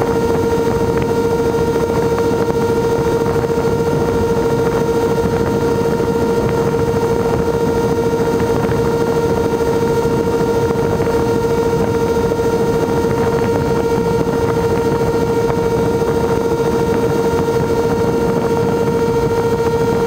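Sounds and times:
propeller motors whining: 0:00.0 - 0:20.0.

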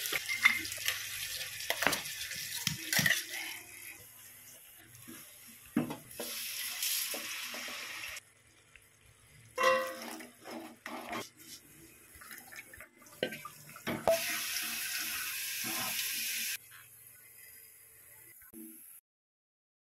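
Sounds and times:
water tap running into sink: 0:12.1 - 0:18.8.

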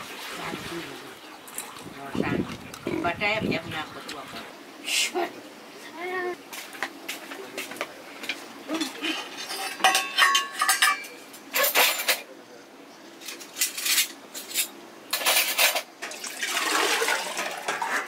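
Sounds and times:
water splashing and pouring: 0:00.0 - 0:04.5, 0:16.0 - 0:18.0
metal pots and utensils clinking: 0:08.2 - 0:12.3, 0:13.2 - 0:18.0.

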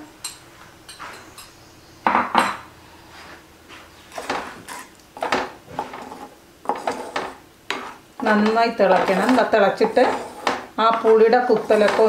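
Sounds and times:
wooden spatula scraping pot: 0:04.0 - 0:12.0.

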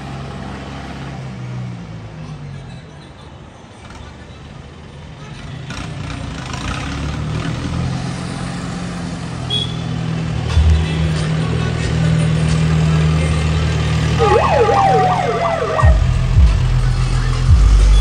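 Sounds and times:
warbling siren: 0:14.2 - 0:16.6.

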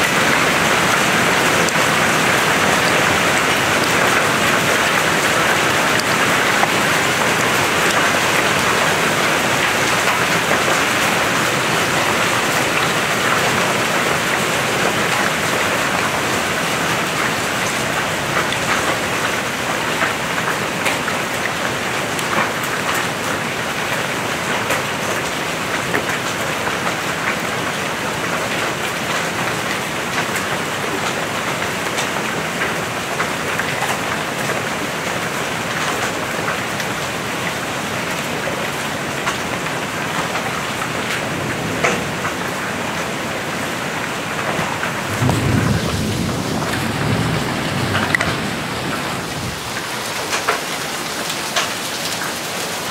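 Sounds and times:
hailstones ticking: 0:00.0 - 0:43.0, 0:44.1 - 0:52.9
heavy rain hissing: 0:42.4 - 0:52.9.

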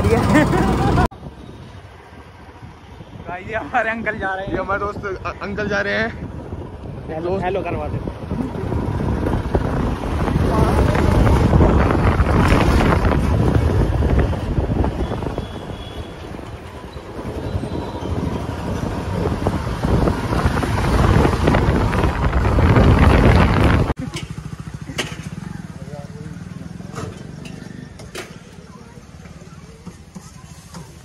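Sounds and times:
motorbike engine: 0:00.0 - 0:01.1, 0:07.9 - 0:31.0
wind buffeting microphone: 0:00.0 - 0:24.0
road noise: 0:00.0 - 0:31.0.

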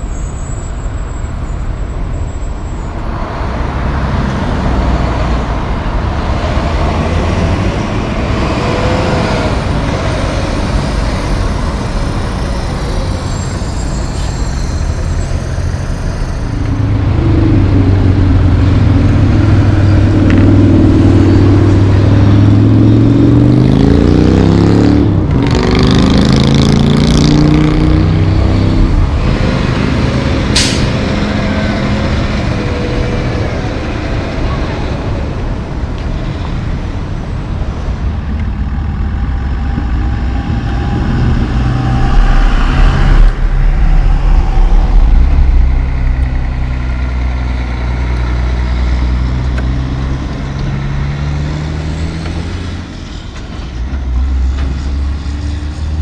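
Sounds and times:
diesel trucks passing: 0:00.0 - 0:56.0
street traffic: 0:00.0 - 0:56.0
loud engine rising in pitch: 0:03.4 - 0:35.4, 0:38.6 - 0:56.0
truck air brakes hissing: 0:13.2 - 0:16.0, 0:30.5 - 0:31.0.

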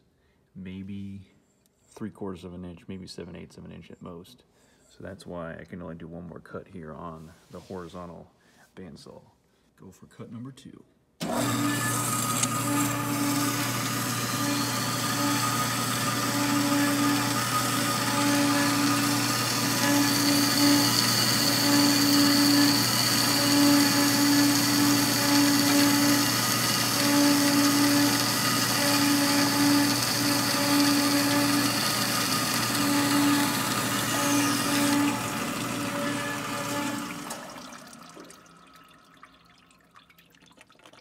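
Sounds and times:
high whine of saw cut: 0:11.2 - 0:38.9
bandsaw motor hum: 0:11.2 - 0:39.4.

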